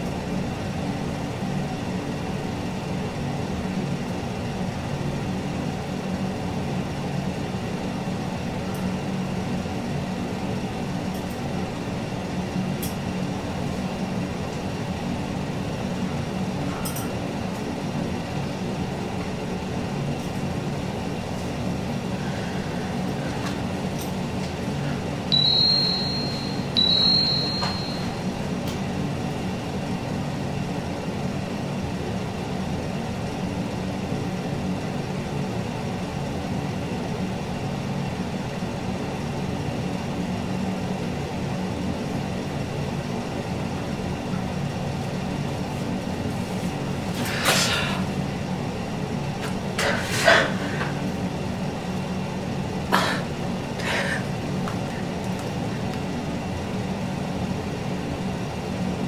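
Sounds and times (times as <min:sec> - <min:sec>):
steady low hum: 0:10.3 - 0:31.7
phone message chimes: 0:25.3 - 0:28.3.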